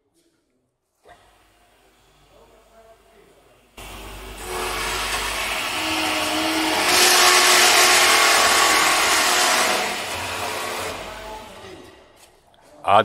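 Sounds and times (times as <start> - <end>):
metal-cutting circular saw: 3.8 - 12.1.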